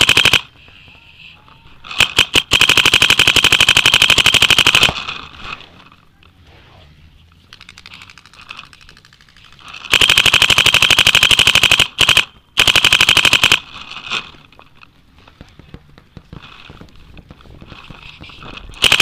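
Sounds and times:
paintball marker firing rapidly: 0.0 - 0.5, 2.0 - 5.0, 9.9 - 13.7, 18.7 - 19.0.

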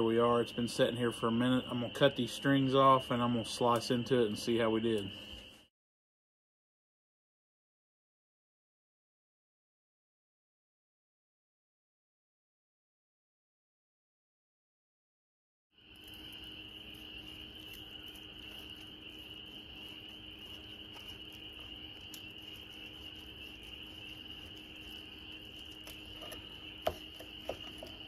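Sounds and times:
crickets chirping: 0.0 - 5.7, 15.8 - 28.0.

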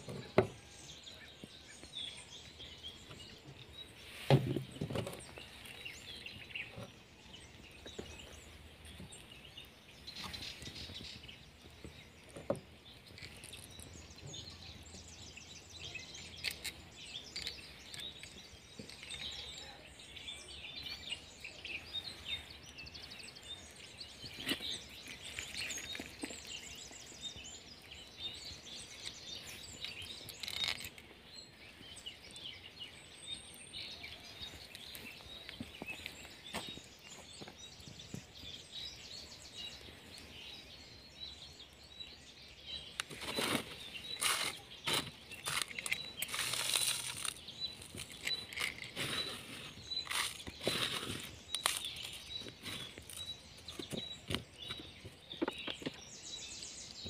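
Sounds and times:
small birds chirping: 0.0 - 57.0
handling clicks and knocks: 43.0 - 56.2.

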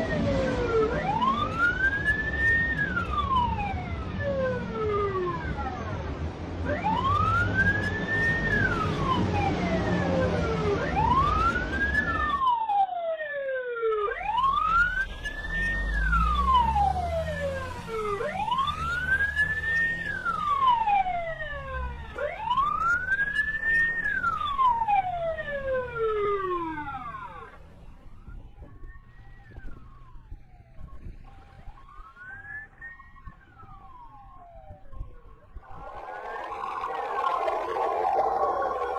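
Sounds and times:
police siren wailing: 0.0 - 38.9
low rumble: 35.5 - 38.9.

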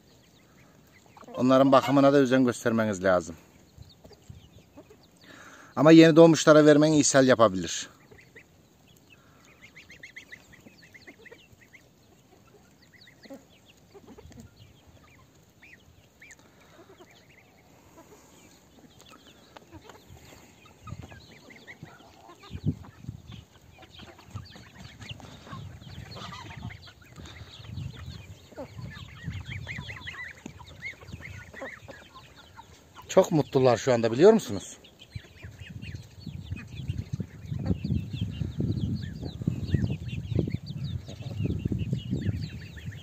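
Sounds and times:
chickens clucking: 0.0 - 43.0.

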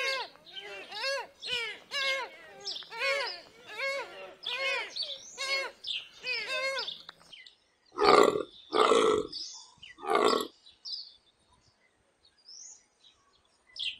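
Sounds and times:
antelope hoarse calls: 0.0 - 7.1, 8.0 - 9.4, 10.0 - 10.5.

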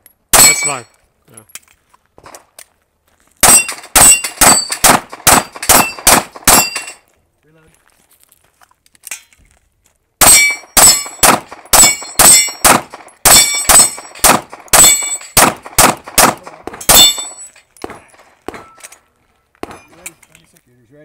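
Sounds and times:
pistol shots: 0.4 - 0.8, 3.4 - 7.0, 10.2 - 18.9, 19.6 - 20.0
steel target plate clanging: 0.4 - 0.9, 3.4 - 7.0, 10.2 - 19.0.

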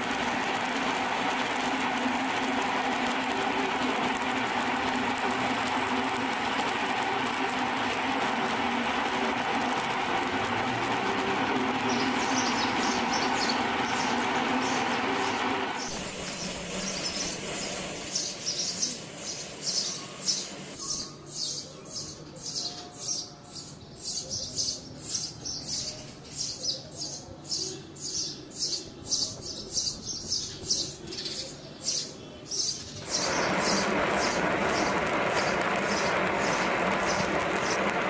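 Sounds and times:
welding arc crackling: 0.0 - 20.8, 32.8 - 38.0.

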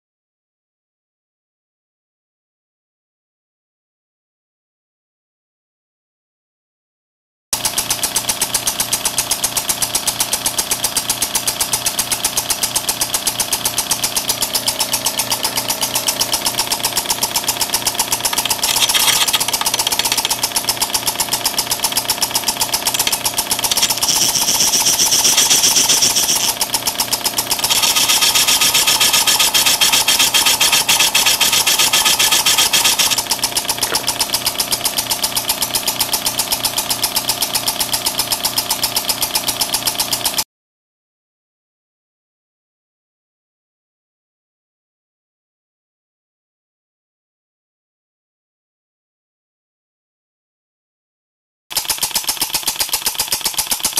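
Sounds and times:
small engine running with valve clicks: 7.6 - 40.5, 51.7 - 53.9.

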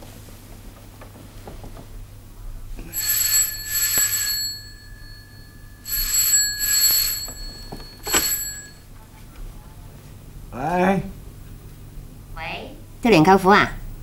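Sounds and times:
dial telephone ringing: 2.8 - 8.9.

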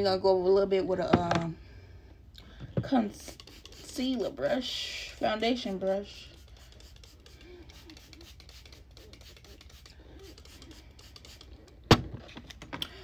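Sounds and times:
brush bristles scratching: 3.1 - 4.4, 5.3 - 11.6.

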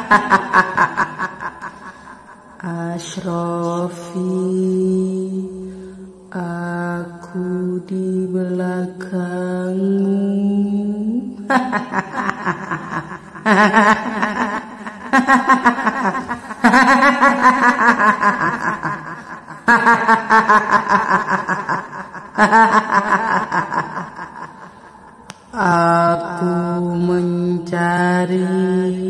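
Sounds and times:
woman cackling laughter: 0.0 - 2.6, 11.5 - 25.2.

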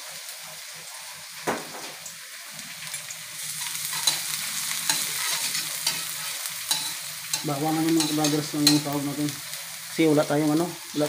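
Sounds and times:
garlic sizzling in hot oil: 0.0 - 11.0
metal turner scraping a pan: 3.5 - 9.0.

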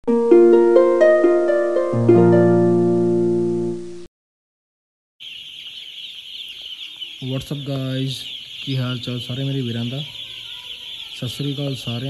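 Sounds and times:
harp-like intro jingle: 0.1 - 4.1
chicks peeping: 5.2 - 12.0.

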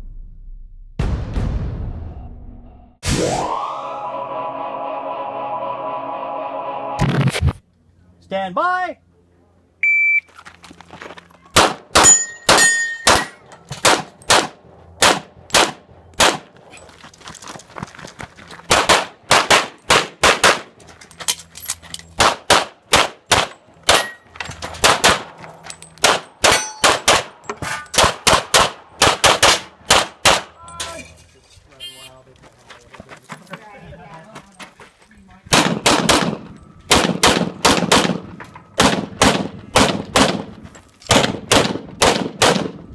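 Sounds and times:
shot timer beep: 9.8 - 10.3
pistol firing rapid shots: 11.6 - 13.2, 13.8 - 16.5, 18.7 - 20.7, 22.2 - 24.0, 24.8 - 25.3, 26.0 - 27.4, 28.0 - 30.5, 35.5 - 40.5, 41.1 - 42.8
steel targets ringing: 12.0 - 13.5, 23.8 - 24.4, 25.7 - 28.0.

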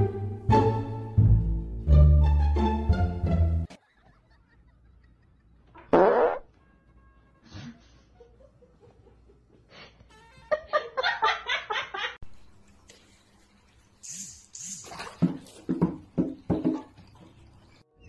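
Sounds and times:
loud fart: 5.7 - 6.6.

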